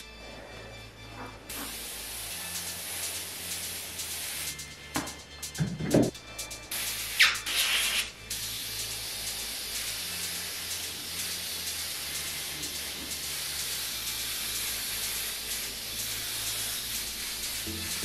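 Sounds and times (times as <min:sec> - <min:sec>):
airbrush spraying hiss: 0:01.5 - 0:04.6, 0:06.7 - 0:18.0.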